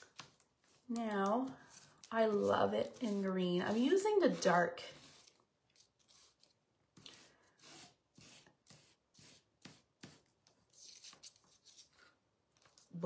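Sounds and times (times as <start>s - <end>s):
marker scratching on paper: 1.6s - 6.5s, 7.1s - 11.9s.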